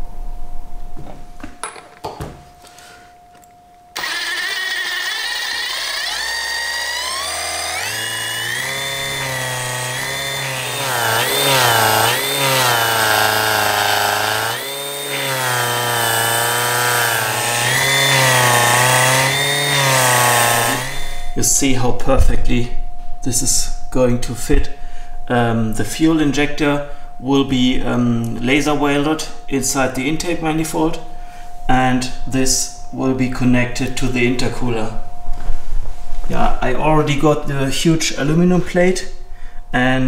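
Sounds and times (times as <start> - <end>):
drill and supercharger whining: 4.0 - 21.4.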